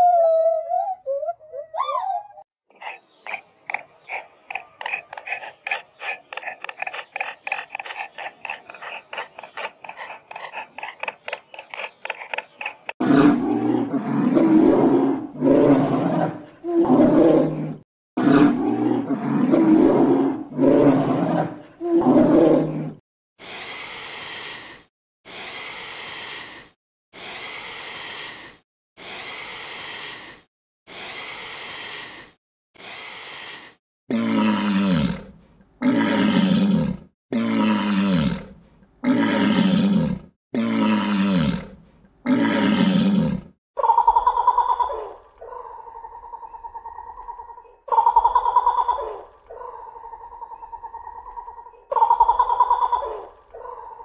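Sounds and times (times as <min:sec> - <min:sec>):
hissing bursts: 0:23.4 - 0:33.8.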